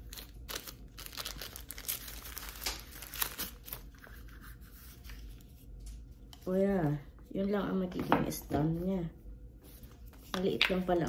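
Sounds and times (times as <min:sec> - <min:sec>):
packaging wrapper crinkling: 0:00.0 - 0:04.0.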